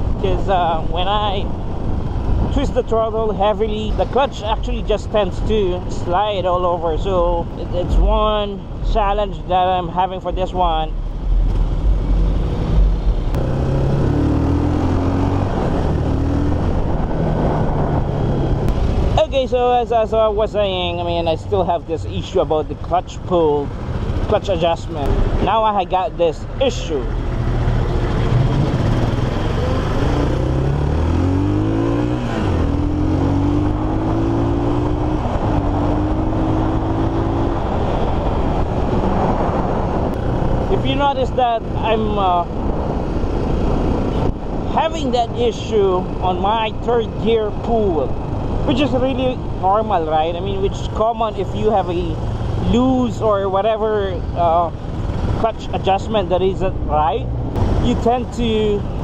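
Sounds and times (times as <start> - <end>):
wind and road noise: 0.0 - 59.0
man talking: 0.2 - 1.5, 2.5 - 11.0, 19.2 - 23.7, 24.3 - 27.2, 40.7 - 42.5, 44.7 - 54.8, 55.4 - 58.9
motorcycle engine rising in pitch: 11.2 - 18.8, 27.2 - 40.7.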